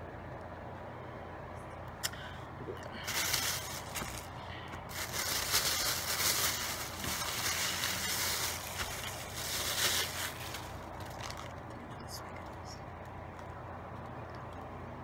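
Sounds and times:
plastic packaging crinkling: 0:02.9 - 0:11.9.

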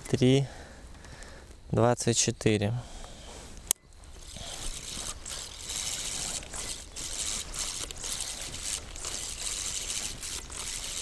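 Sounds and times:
fishing line hissing on reel: 0:04.2 - 0:11.0.

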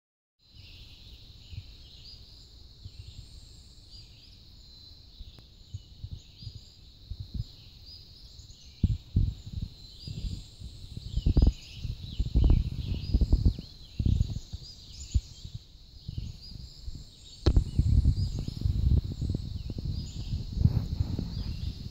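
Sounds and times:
small birds chirping: 0:00.4 - 0:21.9
low thumps and rumbles: 0:08.8 - 0:21.9.

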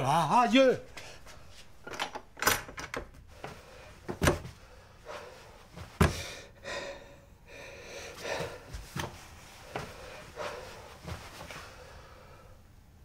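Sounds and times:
man gasping: 0:06.0 - 0:08.8.

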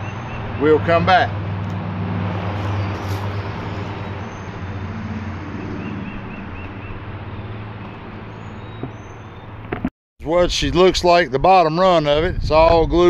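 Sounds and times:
low engine hum: 0:00.0 - 0:09.9
bird chirps: 0:02.6 - 0:09.6.

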